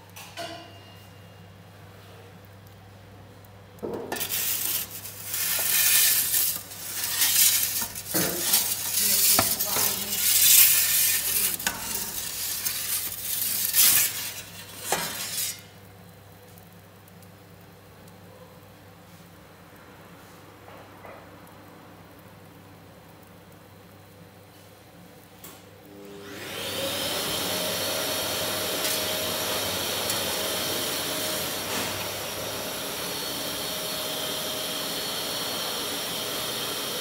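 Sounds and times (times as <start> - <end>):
metal pizza peel scraping stone: 4.1 - 15.7.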